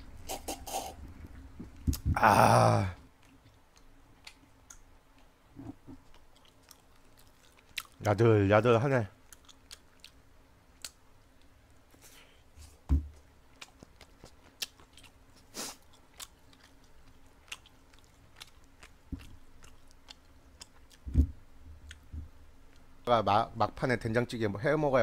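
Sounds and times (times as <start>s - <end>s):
man chewing and biting: 3.1s - 8.0s, 9.2s - 10.2s, 13.5s - 21.2s.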